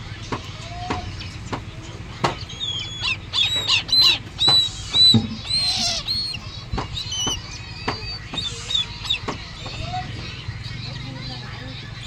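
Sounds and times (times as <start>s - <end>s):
owl chicks chirping: 0.0s - 12.0s
owl chick hissing: 2.9s - 6.4s, 8.1s - 9.2s.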